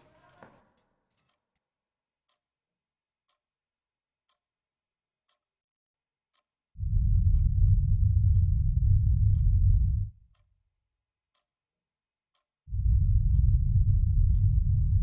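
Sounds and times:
clock ticking: 0:06.3 - 0:10.5, 0:12.3 - 0:15.0.

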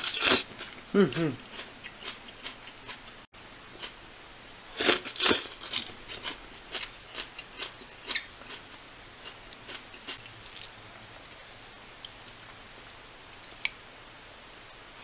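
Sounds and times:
person chewing crunchy salad: 0:00.0 - 0:03.1, 0:04.8 - 0:11.4.

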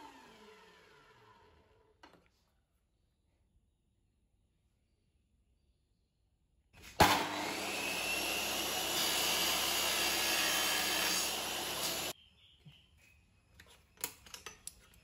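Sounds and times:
mitre saw cutting metal bar: 0:06.9 - 0:12.1.

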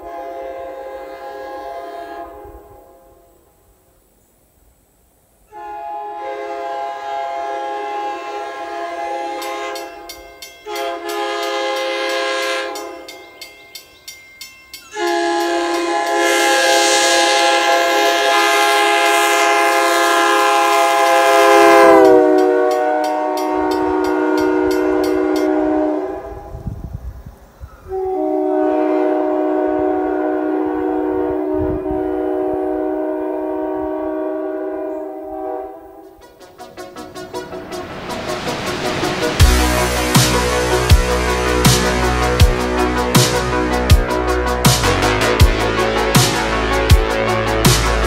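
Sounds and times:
train horn blasts: 0:00.0 - 0:03.4, 0:05.5 - 0:13.3, 0:14.9 - 0:26.8, 0:27.9 - 0:48.0.

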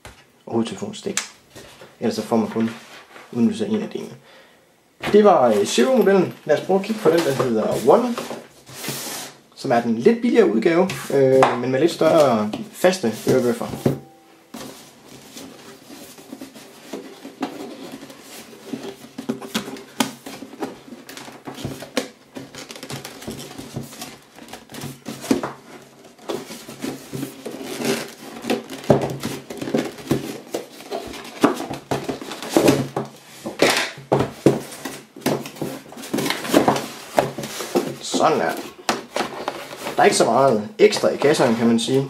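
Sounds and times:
cardboard box scraping and rubbing: 0:07.6 - 0:09.4.

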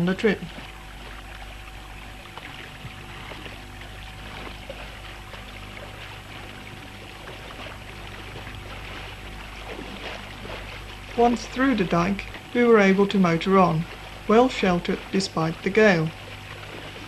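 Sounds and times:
outboard motor running: 0:00.0 - 0:17.0
water rushing along hulls: 0:00.0 - 0:17.0.

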